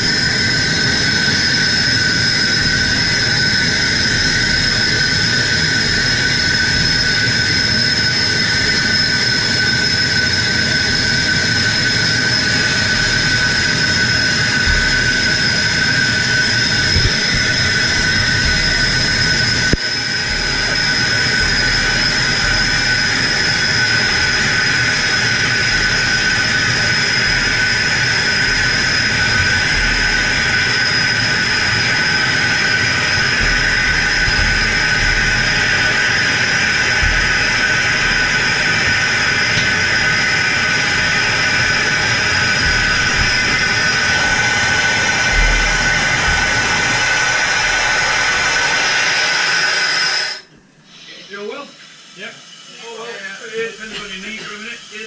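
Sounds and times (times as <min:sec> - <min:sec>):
steady whistling tones: 0:00.0 - 0:55.0
compressed air hissing: 0:12.2 - 0:55.0.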